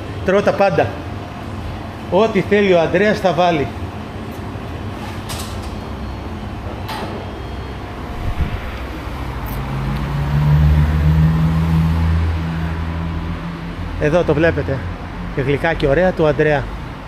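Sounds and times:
street noise: 3.7s - 17.0s
vehicle engine hum: 7.8s - 16.0s.

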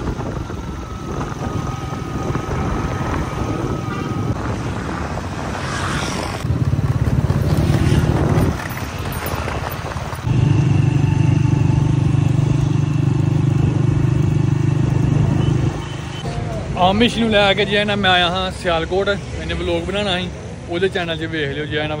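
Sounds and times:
wind rushing: 0.0s - 10.3s
road noise: 0.0s - 22.0s
motorcycle engine running: 6.4s - 15.9s.

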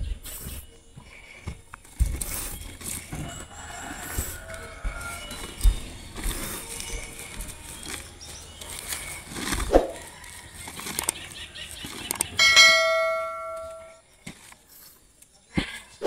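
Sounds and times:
trowel scraping in soil: 2.1s - 12.2s
bell-like metallic ring: 12.4s - 14.0s.

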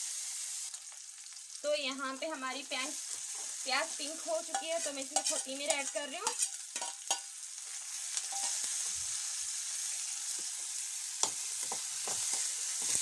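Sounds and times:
onions sizzling in oil: 0.0s - 13.0s
metal ladle scraping pan: 4.4s - 7.3s, 8.3s - 8.7s.

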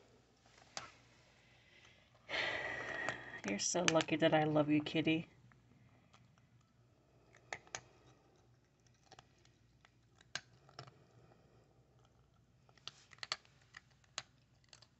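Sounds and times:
cat crunching dry kibble: 5.3s - 14.9s.

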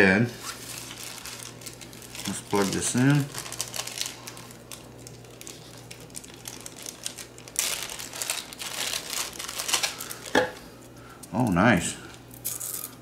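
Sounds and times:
plastic bag crinkling: 0.4s - 10.7s.

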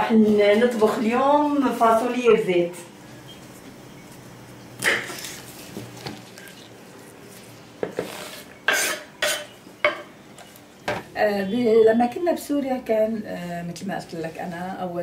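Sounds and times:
pots and dishes clattering: 8.7s - 10.1s.

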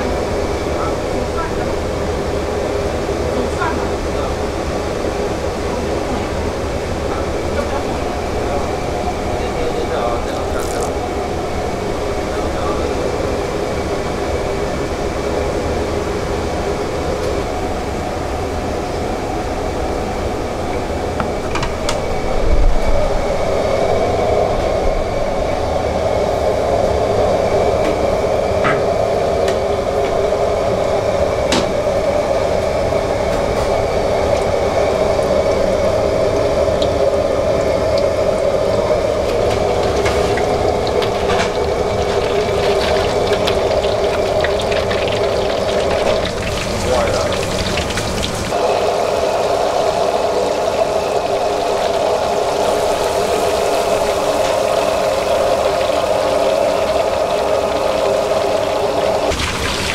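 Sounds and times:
stove roaring: 0.0s - 59.9s
fish sizzling in hot oil: 39.0s - 59.9s.

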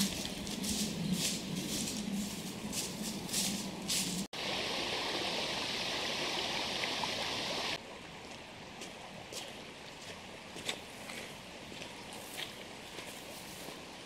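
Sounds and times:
footsteps crunching dry leaves: 0.0s - 4.3s, 9.3s - 13.8s.

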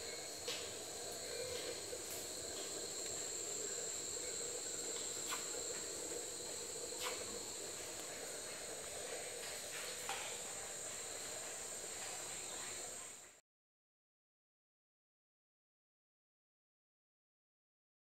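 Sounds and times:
insects droning: 0.0s - 13.4s.

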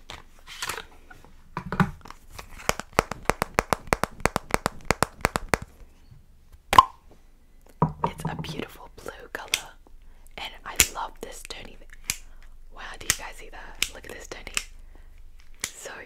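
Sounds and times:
fingernails tapping on plastic tube: 2.9s - 5.6s.

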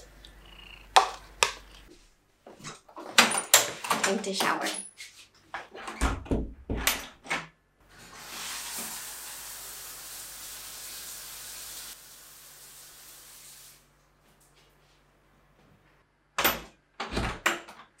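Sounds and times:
shower running: 7.9s - 14.8s.

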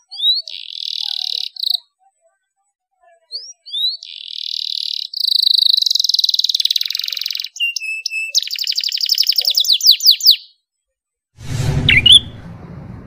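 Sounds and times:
canary singing trills: 0.0s - 2.2s, 3.1s - 10.7s.

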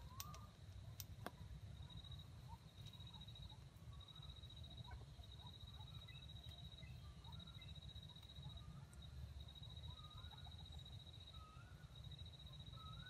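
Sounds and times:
sharp clicks: 0.1s - 0.4s.

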